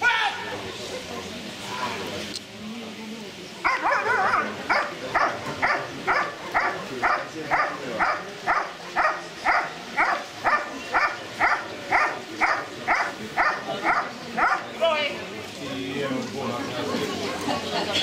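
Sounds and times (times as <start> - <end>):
dog barking: 3.6 - 14.7.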